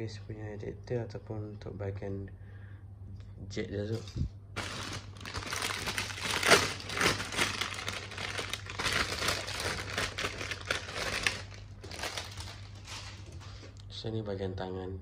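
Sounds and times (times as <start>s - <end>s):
plastic bags crinkling: 4.0s - 13.6s.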